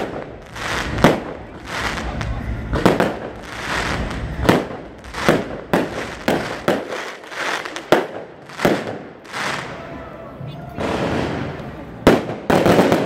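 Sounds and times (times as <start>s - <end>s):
firework shells bursting: 0.0s - 9.8s.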